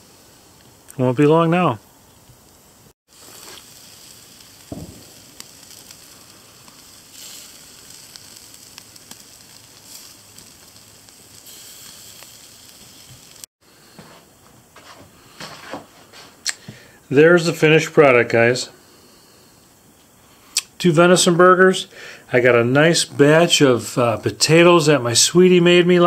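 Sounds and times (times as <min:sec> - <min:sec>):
burgers sizzling on grill: 0:00.0 - 0:14.1, 0:20.2 - 0:26.0
soft thump: 0:04.7 - 0:05.1.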